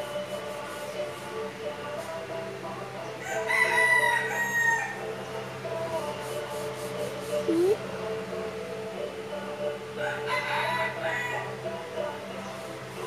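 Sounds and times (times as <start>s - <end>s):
rooster crowing: 3.2s - 5.0s, 10.0s - 11.6s.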